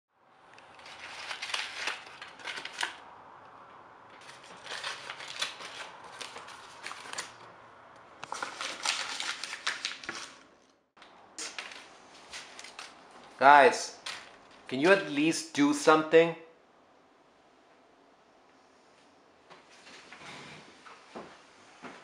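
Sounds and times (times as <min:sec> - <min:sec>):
paper being crumpled: 0:00.7 - 0:03.0, 0:04.2 - 0:07.4, 0:08.2 - 0:10.6, 0:11.4 - 0:13.0.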